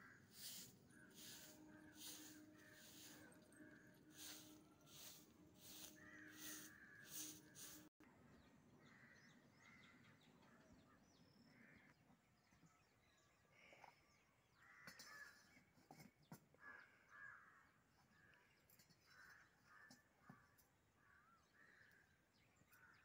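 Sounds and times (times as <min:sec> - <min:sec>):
crows cawing: 0:00.0 - 0:07.9, 0:16.6 - 0:17.7.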